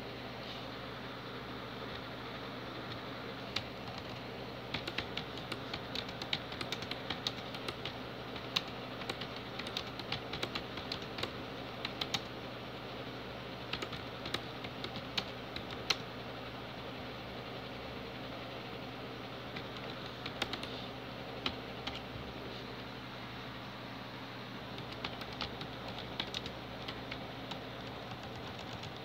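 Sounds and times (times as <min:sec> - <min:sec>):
steady low hum: 0:00.0 - 0:29.0
typing on computer keyboard: 0:03.5 - 0:12.3, 0:13.7 - 0:16.0, 0:19.5 - 0:20.7, 0:24.8 - 0:29.0.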